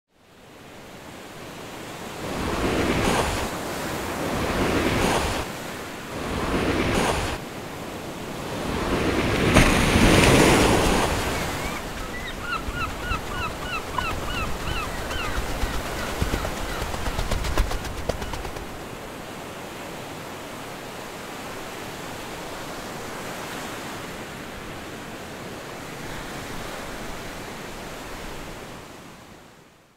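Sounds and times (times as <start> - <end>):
ocean waves surging: 1.4 - 24.0
bird chirping: 11.3 - 18.7.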